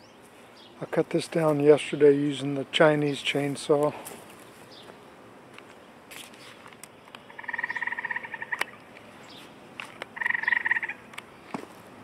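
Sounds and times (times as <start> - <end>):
frog calling pulsed trills: 7.2 - 8.9, 10.2 - 11.1.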